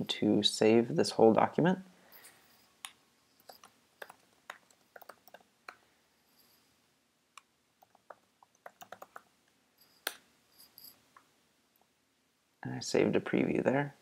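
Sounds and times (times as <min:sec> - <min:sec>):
keyboard typing: 0:02.8 - 0:05.8, 0:07.8 - 0:09.3.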